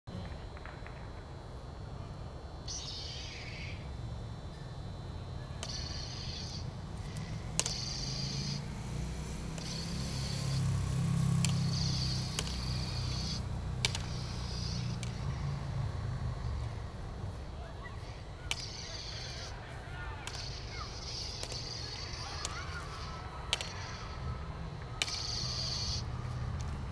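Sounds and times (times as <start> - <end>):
high hiss bursts: 5.6 - 26.9
stick clacking on plastic blade: 9.5 - 15.2, 20.2 - 24.1.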